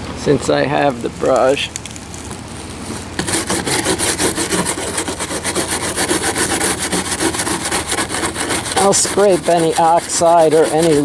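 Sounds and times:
brush scrubbing plastic: 0:02.8 - 0:11.0.

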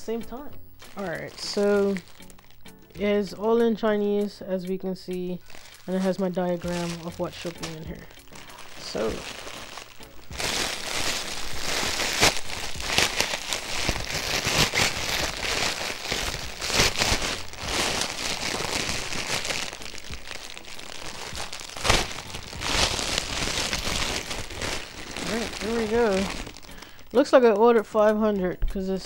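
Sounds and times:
plastic packaging crinkling: 0:00.4 - 0:27.6.

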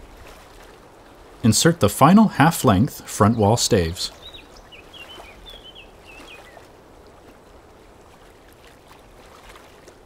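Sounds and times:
steady low hiss: 0:01.0 - 0:04.7
bird chirping: 0:03.2 - 0:06.6.

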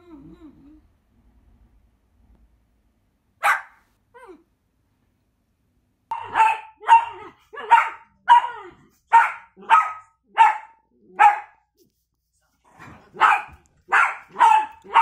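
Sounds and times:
dog barking: 0:03.4 - 0:03.8, 0:06.1 - 0:11.6, 0:13.1 - 0:15.0.

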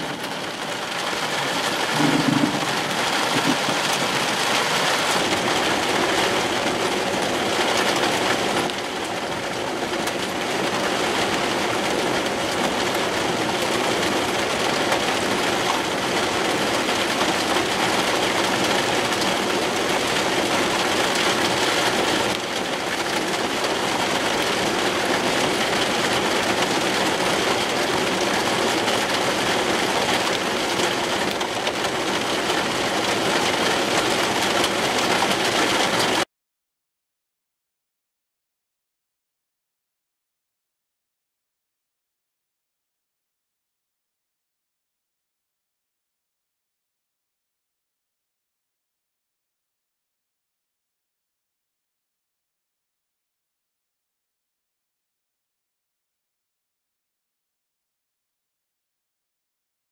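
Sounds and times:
wind: 0:00.0 - 0:36.2
heavy rain: 0:00.0 - 0:36.3.

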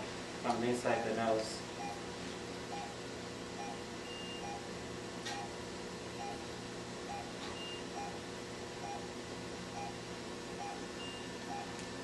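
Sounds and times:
room equipment hum: 0:00.0 - 0:12.0
patient monitor pulse beeps: 0:01.8 - 0:02.0, 0:02.7 - 0:03.0, 0:03.6 - 0:04.7, 0:05.3 - 0:05.6, 0:06.2 - 0:06.4, 0:07.1 - 0:08.2, 0:08.8 - 0:09.1, 0:09.7 - 0:10.0, 0:10.6 - 0:11.8
higher beeps: 0:02.7 - 0:03.0.

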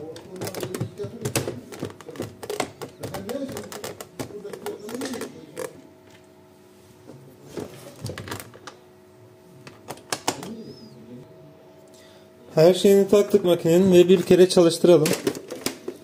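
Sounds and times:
plastic clicks and knocks: 0:00.1 - 0:06.2.

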